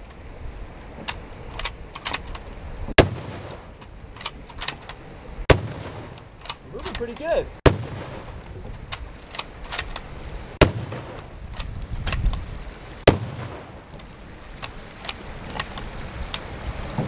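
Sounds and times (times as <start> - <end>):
rifle shots: 3.0 - 3.7, 5.5 - 6.6, 7.6 - 8.4, 10.6 - 11.7, 13.0 - 13.9.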